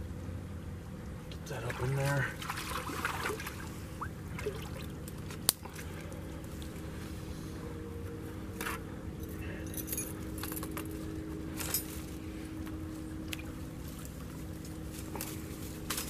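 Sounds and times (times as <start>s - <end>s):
metal trap chain jangling: 9.2s - 10.8s.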